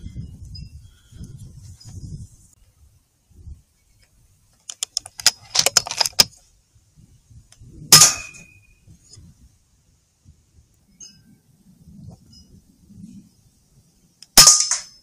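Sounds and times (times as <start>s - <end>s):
metallic clicks and rattles: 4.6s - 6.4s
metallic ring: 10.9s - 11.4s
air rifle shot: 14.4s - 15.0s.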